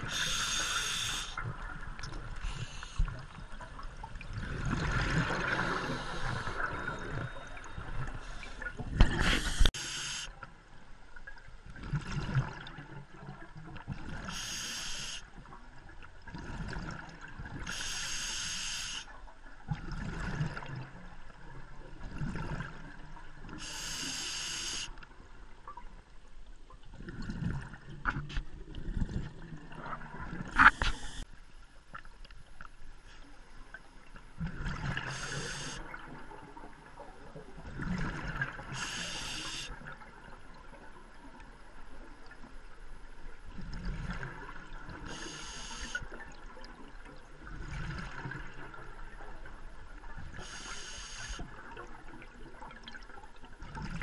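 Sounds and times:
scuba regulator breathing hiss: 0.0 - 1.5, 2.4 - 3.2, 5.6 - 6.7, 8.2 - 10.4, 14.3 - 15.3, 17.7 - 19.2, 23.6 - 25.0, 30.6 - 31.2, 35.0 - 35.8, 38.7 - 39.8, 45.1 - 46.0, 50.4 - 51.5.

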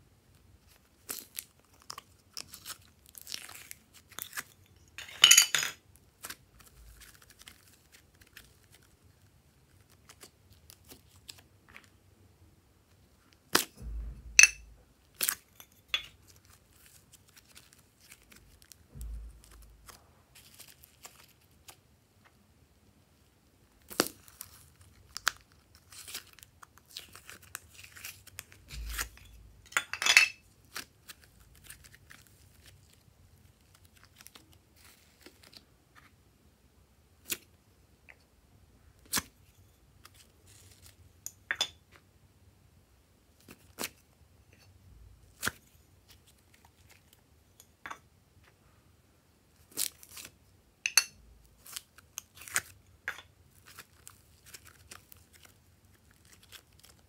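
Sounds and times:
slime crackling and tearing: 53.5 - 57.0.

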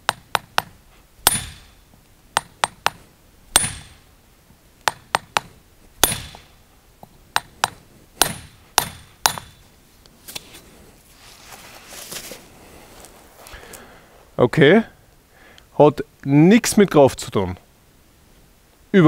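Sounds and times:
hammer striking steel iron: 0.0 - 1.8, 2.4 - 4.1, 4.8 - 6.6, 7.4 - 9.7.

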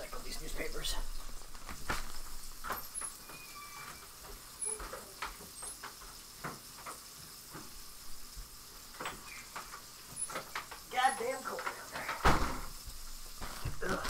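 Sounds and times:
faint household knocks and clicks: 1.2 - 14.0
brief high squeaks: 3.2 - 4.8.

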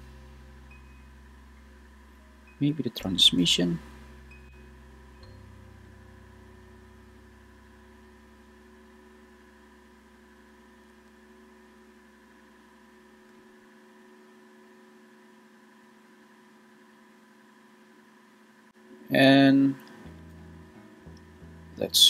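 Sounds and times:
deep low hum: 0.0 - 13.4, 20.0 - 22.0
faint electrical hum: 0.0 - 22.0.

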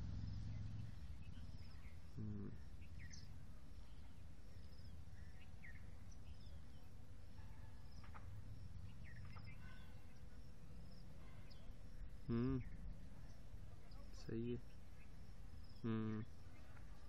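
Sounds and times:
low background rumble: 0.0 - 6.8.

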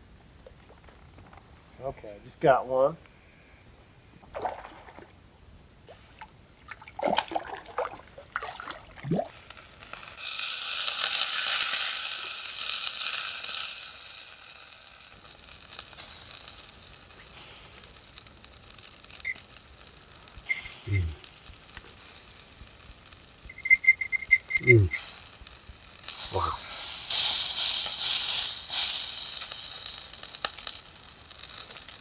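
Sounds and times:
fish sizzling on a grill plate: 9.3 - 32.0.

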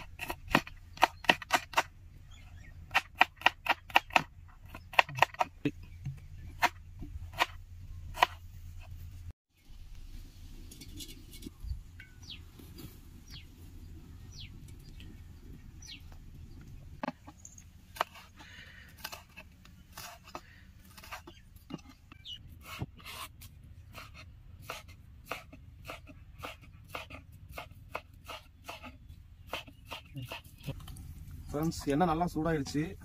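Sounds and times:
high falling bird chirps: 11.6 - 16.2.

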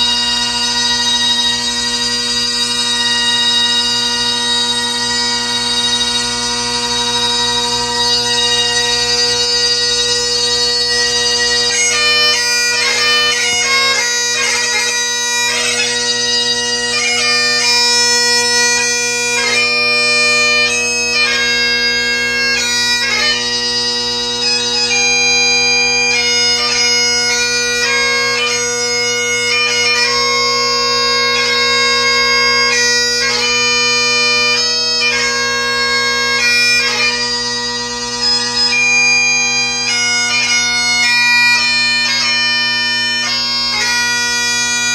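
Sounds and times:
bagpipe playing solo: 0.0 - 44.9.

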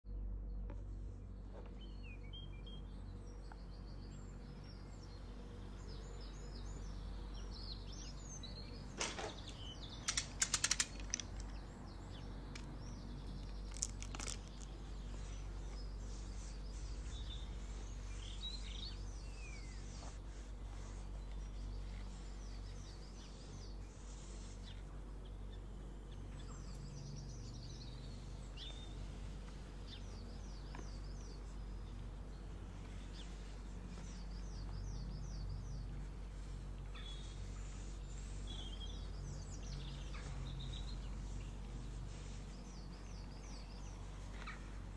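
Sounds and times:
small birds chirping: 0.1 - 44.9
steady low hum: 0.1 - 44.9
sharp clicks: 8.9 - 11.7.

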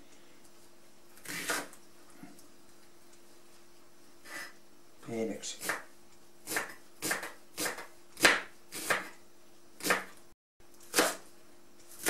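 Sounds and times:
knife chopping on plastic board: 5.6 - 9.1, 9.8 - 10.1.

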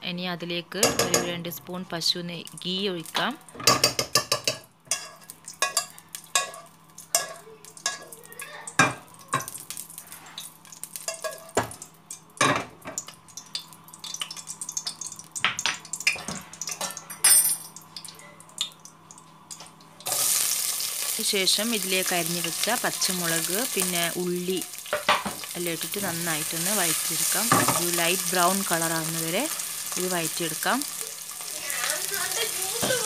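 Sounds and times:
loud frying sizzle: 0.8 - 33.0
knocks on pan: 3.6 - 4.6, 27.5 - 27.9.

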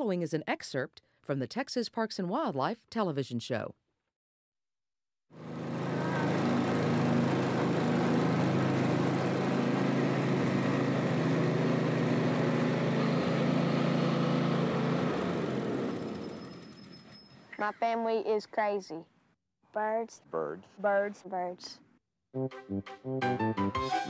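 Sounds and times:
riding lawn mower engine: 5.4 - 17.2.

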